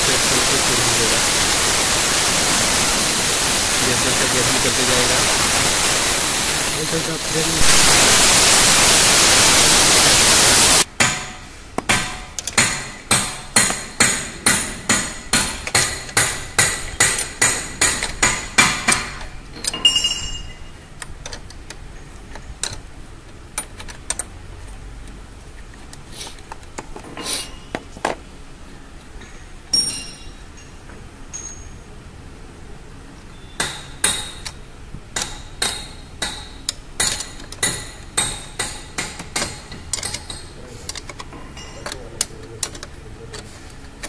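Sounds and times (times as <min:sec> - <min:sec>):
air hissing from air line: 0:00.0 - 0:10.9
metal-on-metal taps ringing: 0:18.9 - 0:20.6, 0:29.7 - 0:31.7
wrench clinking on metal: 0:19.0 - 0:20.7, 0:29.7 - 0:31.8, 0:39.4 - 0:42.9.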